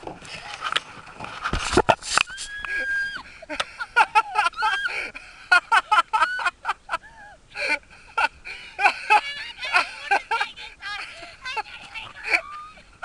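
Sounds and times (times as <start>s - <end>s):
woman squealing and laughing: 2.3s - 3.4s, 4.0s - 5.1s, 5.9s - 7.4s, 11.4s - 13.0s.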